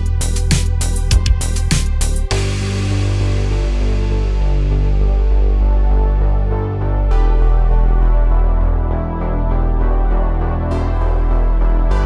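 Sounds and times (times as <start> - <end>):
electronic music with steady beat: 0.0 - 12.0
cymbal crash: 2.3 - 5.5.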